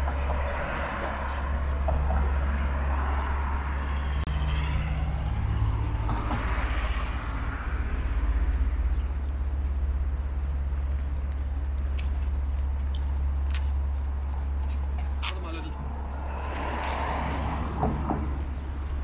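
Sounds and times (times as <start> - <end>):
cars passing: 0.0 - 19.0
steady low traffic rumble: 0.0 - 19.0.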